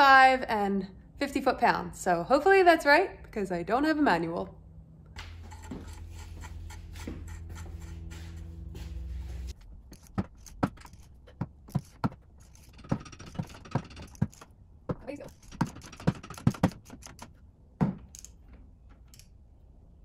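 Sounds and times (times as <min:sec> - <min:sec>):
steady low hum: 0:04.4 - 0:20.0.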